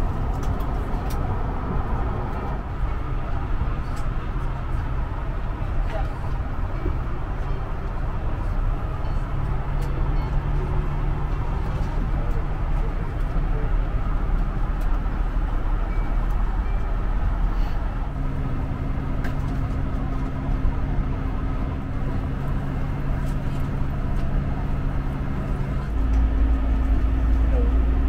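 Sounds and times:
low tone: 14.9 - 22.2, 24.6 - 28.0.

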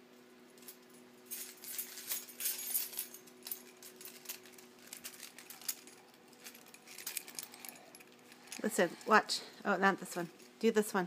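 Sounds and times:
faint steady hum: 0.0 - 11.0
keys jangling: 0.6 - 9.2.

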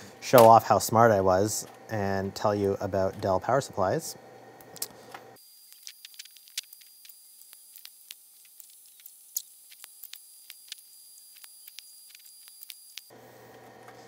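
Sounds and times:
faint steady high whine: 0.0 - 14.0.

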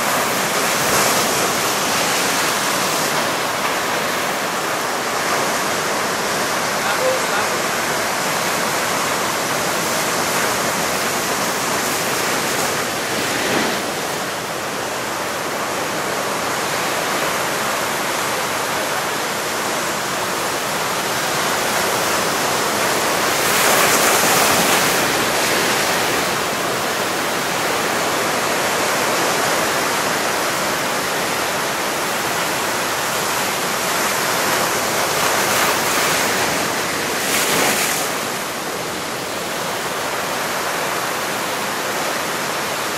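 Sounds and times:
surf breaking over rocks: 0.0 - 17.3, 19.6 - 39.4.

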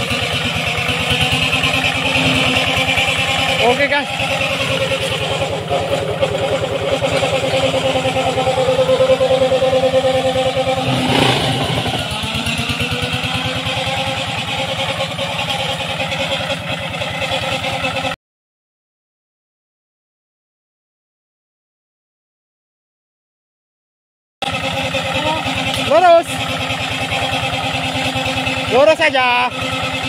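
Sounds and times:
tractor engine running: 0.0 - 18.2, 24.4 - 30.0.

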